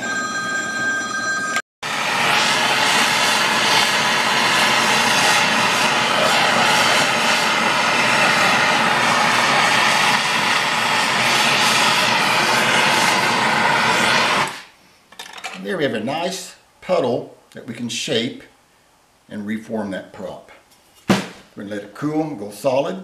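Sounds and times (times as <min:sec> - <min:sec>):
gas torch flame hissing: 0:01.8 - 0:14.8.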